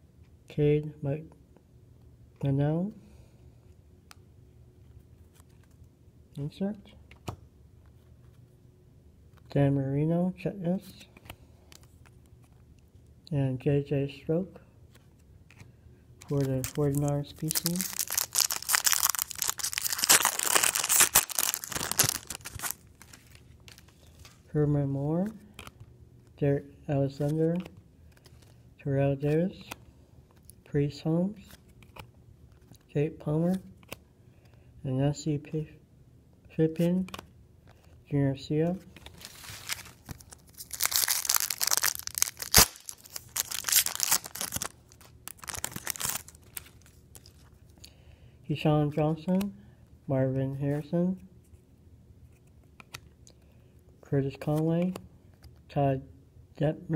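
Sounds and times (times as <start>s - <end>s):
foil wrappers crinkling and tearing: 16.3s - 24.4s, 39.0s - 47.5s
sharp crack: 41.0s - 43.0s.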